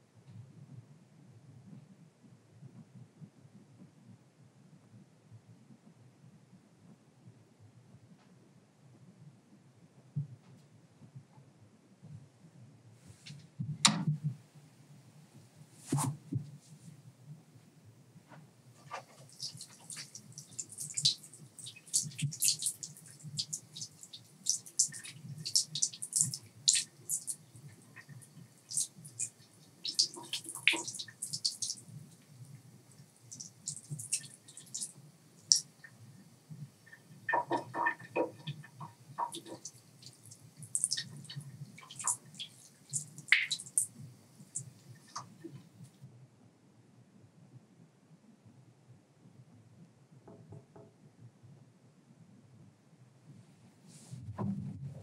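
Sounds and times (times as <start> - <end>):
tap water splashing into sink: 18.8 - 31.8, 36.9 - 43.9.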